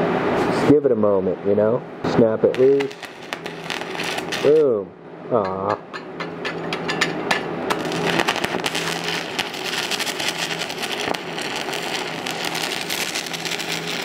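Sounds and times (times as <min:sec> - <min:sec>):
welding arc crackling and sizzling: 0:02.1 - 0:04.8, 0:06.4 - 0:14.0.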